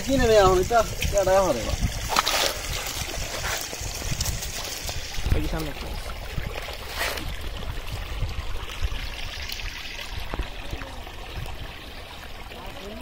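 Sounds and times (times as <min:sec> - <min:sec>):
water trickling through net: 0:00.0 - 0:13.0
water splash: 0:00.4 - 0:07.6.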